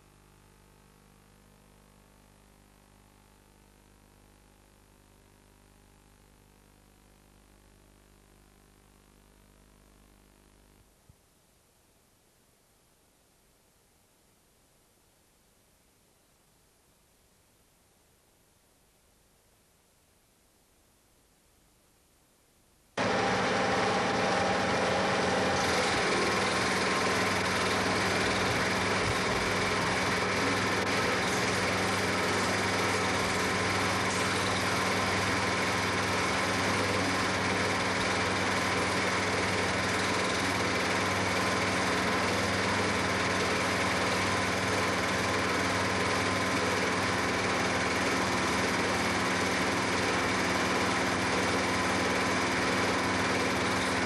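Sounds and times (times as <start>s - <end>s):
film projector running: 23.0s - 54.0s.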